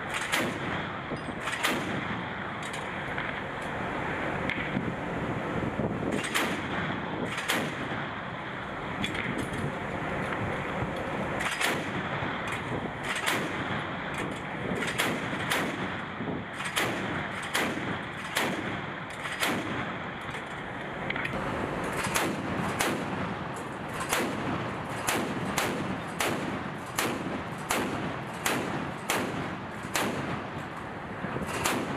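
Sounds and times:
wind and sea rushing: 0.0 - 31.9
naval gun firing single shots: 22.0 - 23.4, 24.0 - 30.5, 31.5 - 31.9.

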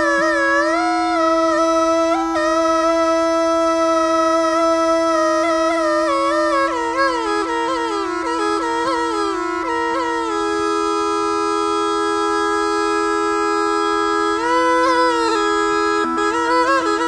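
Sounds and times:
snake charmer's pipe melody: 0.0 - 17.0.

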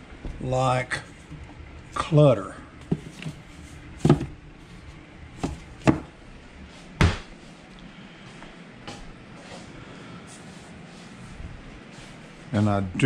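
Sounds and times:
containers knocking on a shelf: 2.8 - 3.4, 4.0 - 4.4, 5.4 - 6.1.

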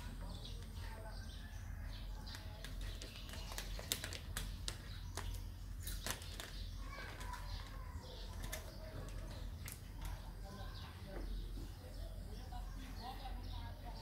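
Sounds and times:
plastic bag crinkling: 2.6 - 7.5.

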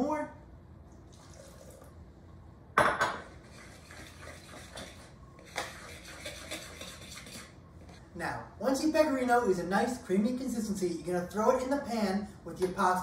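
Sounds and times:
metal utensil stirring in bowl: 3.5 - 7.5.

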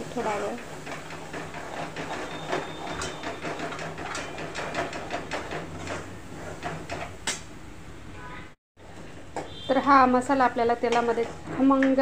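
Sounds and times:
paste sizzling in hot oil: 0.0 - 4.0
metal ladle scraping a pan: 10.7 - 12.0.

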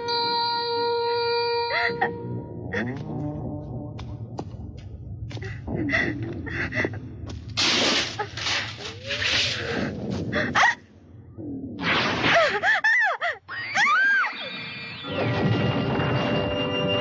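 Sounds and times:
woman gasping: 9.7 - 10.8.

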